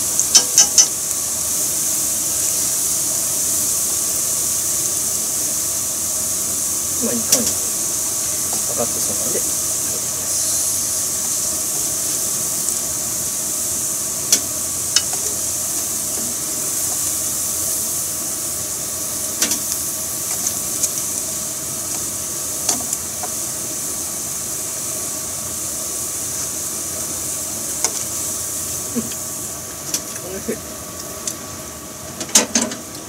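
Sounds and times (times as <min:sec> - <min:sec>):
deep-frying sizzle in oil: 0:00.0 - 0:33.0.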